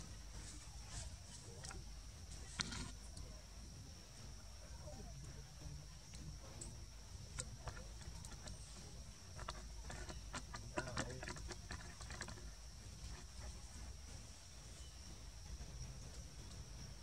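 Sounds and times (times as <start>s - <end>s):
monkey chewing food: 0.1s - 3.2s, 6.0s - 16.8s.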